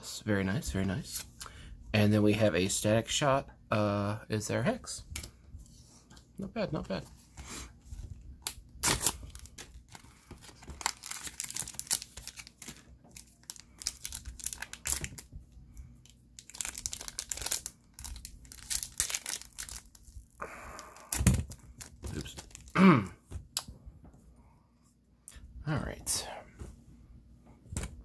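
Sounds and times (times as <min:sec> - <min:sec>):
foil wrapper crinkling and tearing: 0:08.4 - 0:15.3, 0:16.0 - 0:20.4, 0:21.0 - 0:22.8.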